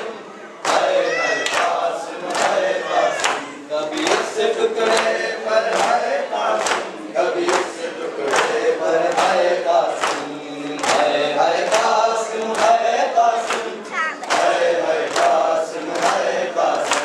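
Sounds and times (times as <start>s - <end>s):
men chanting together: 0.0s - 17.0s.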